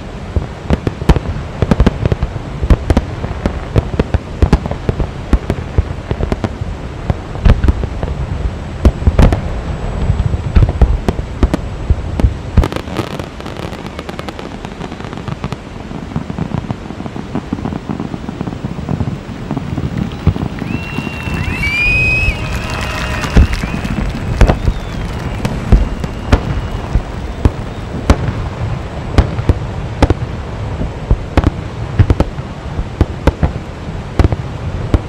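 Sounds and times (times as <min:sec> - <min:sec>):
firework crackling: 0:00.0 - 0:35.0
firework shells booming: 0:10.5 - 0:30.3.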